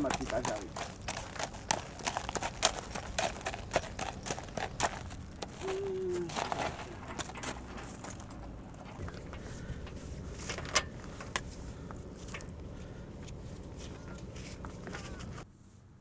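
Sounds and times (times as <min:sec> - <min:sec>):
metal fittings clinking and jingling: 0:06.5 - 0:12.8.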